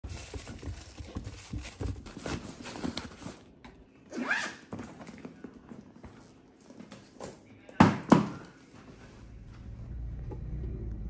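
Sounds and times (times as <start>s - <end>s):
plastic bags rustling: 0.0s - 3.6s.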